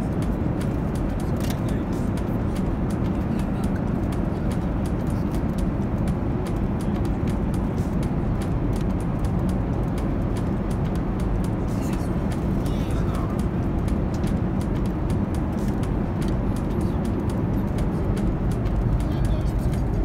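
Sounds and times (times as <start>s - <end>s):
airliner engine and airflow roar: 0.0s - 20.0s.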